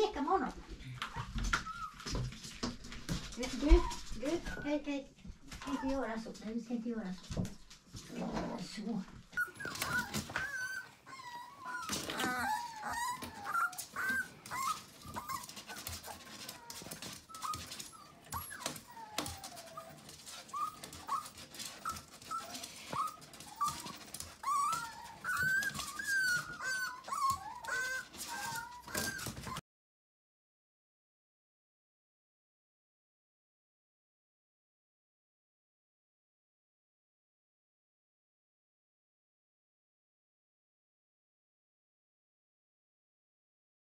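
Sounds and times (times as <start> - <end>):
puppy whimpering and whining: 0.8 - 2.3, 3.4 - 4.8, 9.3 - 29.6.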